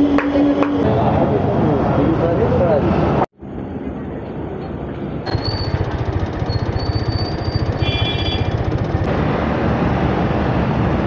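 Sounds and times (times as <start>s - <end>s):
rapid mechanical rattle: 5.3s - 9.1s.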